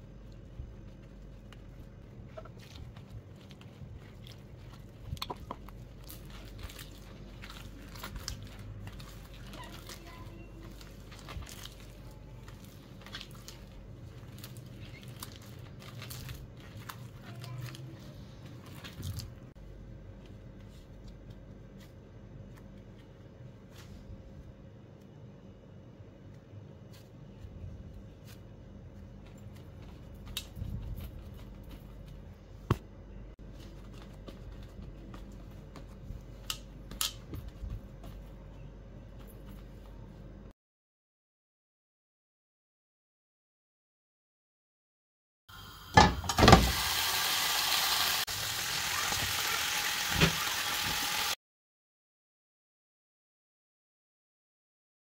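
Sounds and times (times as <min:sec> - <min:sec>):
hand squeezing dough: 0:00.0 - 0:24.6, 0:26.2 - 0:40.5
low steady hum: 0:00.0 - 0:40.5
chicken sizzling: 0:45.5 - 0:51.4.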